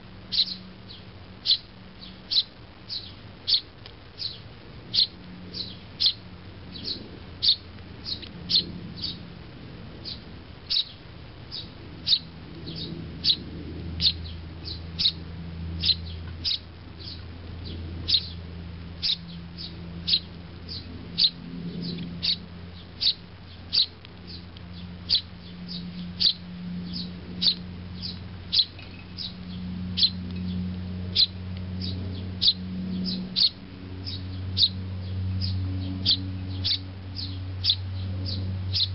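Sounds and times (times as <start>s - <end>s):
sparrow fledgling chirping: 0.0s - 38.9s.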